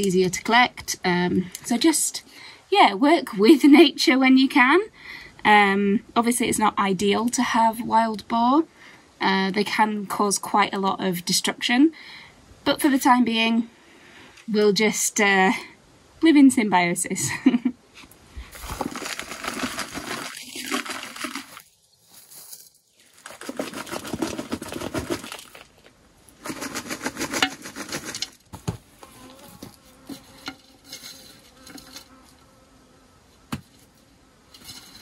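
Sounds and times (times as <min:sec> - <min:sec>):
soil pouring and rustling: 0:18.4 - 0:32.4, 0:34.5 - 0:35.0
fly buzzing: 0:28.8 - 0:35.0.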